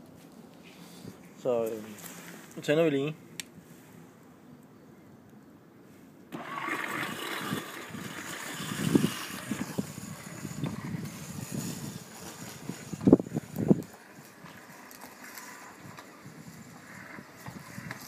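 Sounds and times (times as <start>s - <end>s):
robot mower motors whirring: 6.3s - 18.0s.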